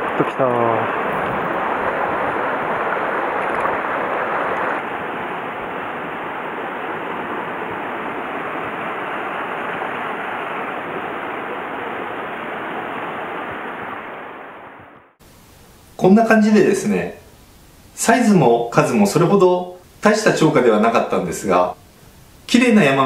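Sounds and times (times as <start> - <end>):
water rushing over rocks: 0.0 - 15.1.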